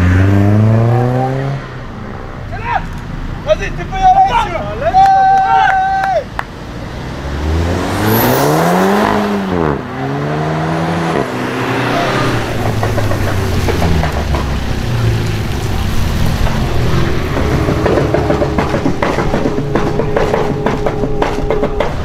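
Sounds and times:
car engine accelerating hard: 0.0s - 1.8s, 6.4s - 22.0s
hiss of wet road and rain: 12.2s - 17.7s.

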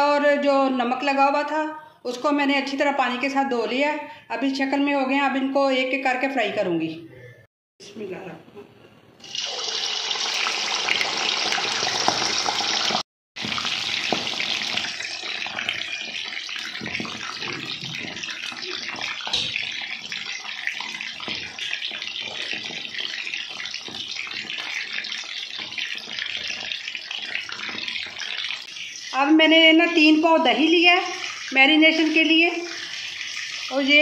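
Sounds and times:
chicken deep-frying in oil: 9.2s - 34.0s.

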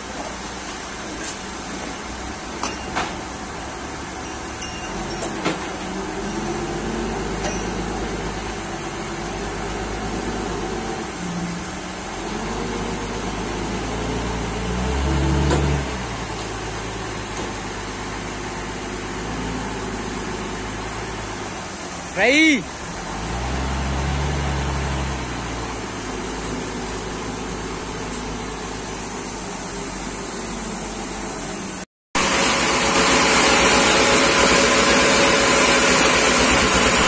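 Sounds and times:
forklift engine running: 0.0s - 37.0s
sharp metal clanks: 2.6s - 3.2s, 4.2s - 5.6s, 7.4s - 8.0s.

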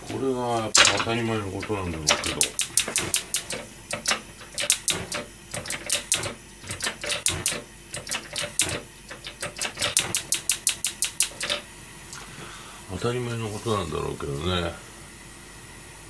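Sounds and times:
gas burner lighting: 0.0s - 14.0s
gas stove igniter clicking: 1.6s - 11.7s.

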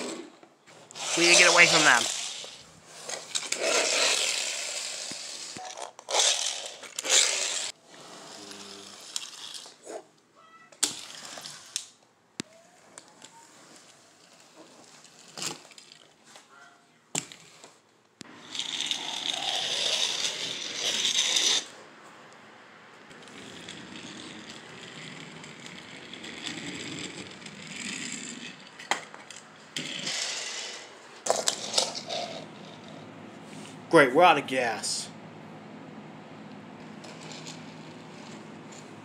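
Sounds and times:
toy car clicks and rattles: 0.9s - 9.8s, 10.8s - 12.0s, 12.9s - 16.2s, 18.3s - 21.7s, 23.1s - 33.0s, 37.0s - 38.9s.

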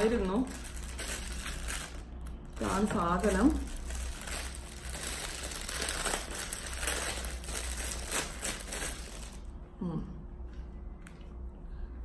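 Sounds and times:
plastic bag crinkling: 0.0s - 9.5s.

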